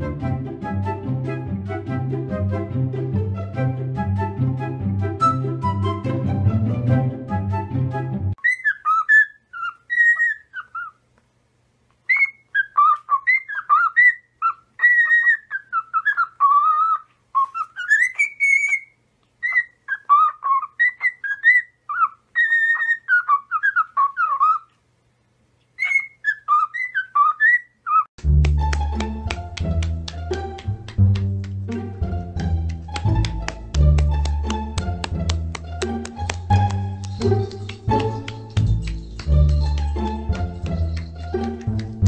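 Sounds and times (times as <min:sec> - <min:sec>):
cockatiel whistling: 0:08.4 - 0:10.9, 0:12.1 - 0:24.6, 0:25.8 - 0:28.1.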